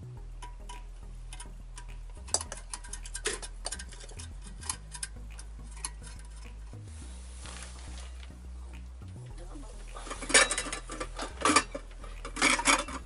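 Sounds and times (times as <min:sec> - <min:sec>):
steady low hum: 0:00.0 - 0:13.0
small hard objects clicking: 0:00.4 - 0:06.8, 0:09.9 - 0:13.0.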